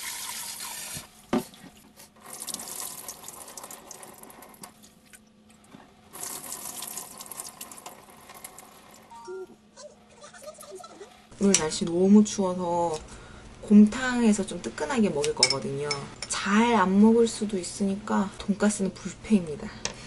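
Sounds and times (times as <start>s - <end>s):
tap water running into sink: 0.0s - 1.6s, 2.2s - 4.8s, 6.1s - 9.0s.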